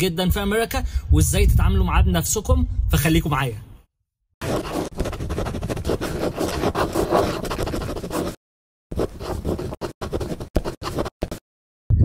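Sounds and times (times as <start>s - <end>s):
pen scratching on paper: 4.4s - 11.4s.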